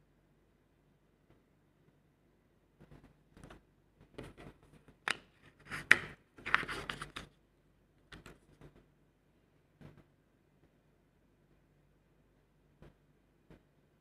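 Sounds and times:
paper cards rustling and sliding: 0:04.2 - 0:07.4.

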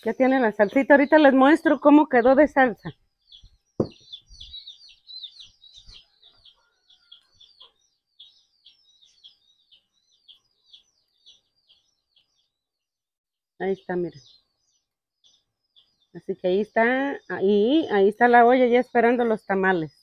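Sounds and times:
bird chirping: 0:00.0 - 0:13.0, 0:13.6 - 0:20.0
dull knocks: 0:03.8 - 0:04.0.

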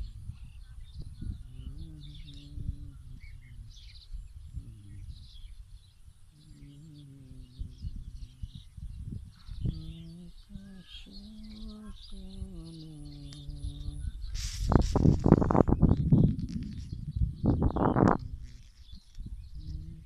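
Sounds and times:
small birds chirping: 0:00.0 - 0:20.0
wind buffeting microphone: 0:00.0 - 0:20.0
low voice-like drone: 0:01.2 - 0:05.5, 0:06.3 - 0:08.8, 0:09.4 - 0:14.3, 0:15.6 - 0:18.7, 0:19.4 - 0:20.0.

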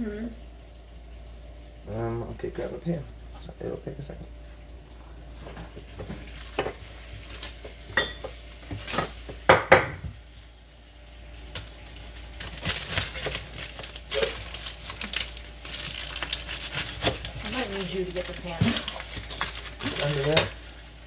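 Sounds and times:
pots and pans clattering: 0:05.5 - 0:10.1, 0:12.6 - 0:20.8.

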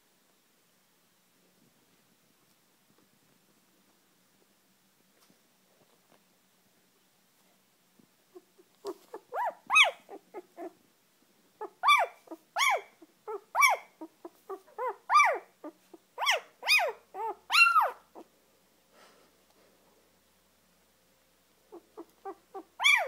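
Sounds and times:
puppy crying in high squeals: 0:09.1 - 0:10.7, 0:11.6 - 0:14.0, 0:14.8 - 0:15.5, 0:16.2 - 0:18.2, 0:22.2 - 0:23.0.

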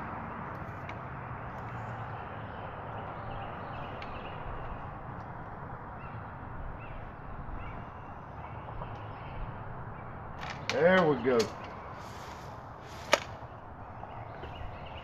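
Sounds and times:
outdoor background noise: 0:00.0 - 0:15.0
faint bird calls: 0:06.0 - 0:10.2.

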